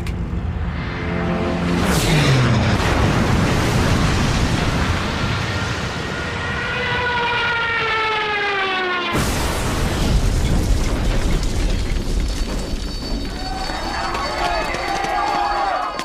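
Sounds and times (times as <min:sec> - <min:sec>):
rumbling noise: 0:00.0 - 0:06.6, 0:09.2 - 0:13.8
blast: 0:00.6 - 0:07.1, 0:09.1 - 0:13.2
aircraft engine whining: 0:04.6 - 0:09.2.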